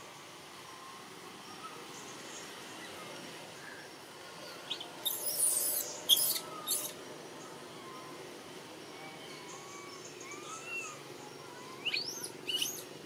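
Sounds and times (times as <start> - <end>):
bird chirps: 4.7 - 7.0, 9.2 - 12.9.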